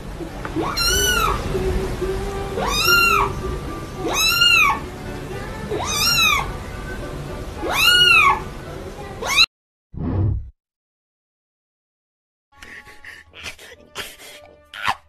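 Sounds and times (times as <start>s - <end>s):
kitten meowing: 0.6s - 1.4s, 2.6s - 3.3s, 4.0s - 4.8s, 5.7s - 6.5s, 7.6s - 8.4s, 9.2s - 9.5s.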